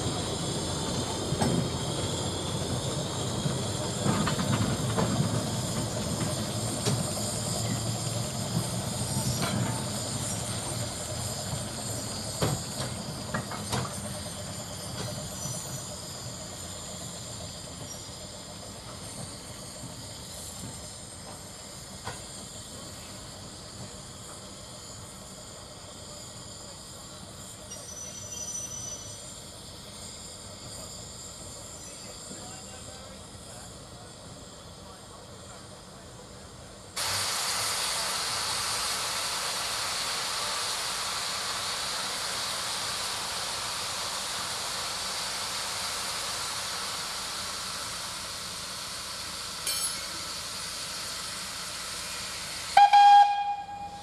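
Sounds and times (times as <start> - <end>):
steam locomotives hissing: 0.0 - 54.0
short high squeal: 27.7 - 29.3.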